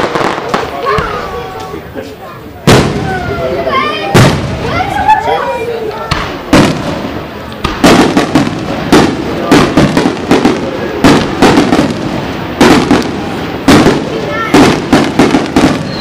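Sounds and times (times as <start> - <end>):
firework crackle: 0.0 - 16.0
firework shells bursting: 5.9 - 16.0.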